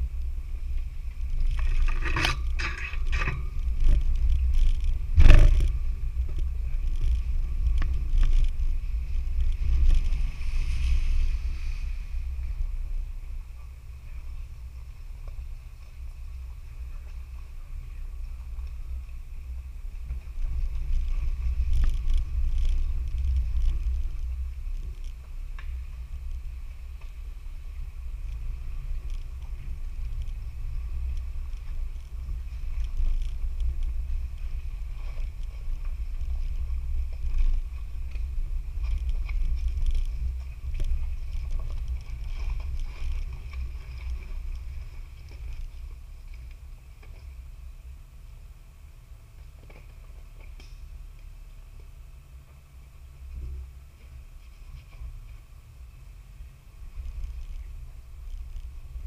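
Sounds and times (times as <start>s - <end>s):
vehicle engine rumble: 0.0s - 59.0s
knocks and rattles: 1.4s - 8.8s.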